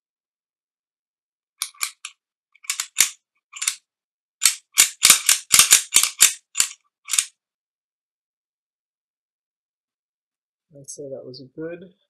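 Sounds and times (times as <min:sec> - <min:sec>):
pistol action metallic clicks: 0:01.6 - 0:03.8, 0:04.4 - 0:07.3.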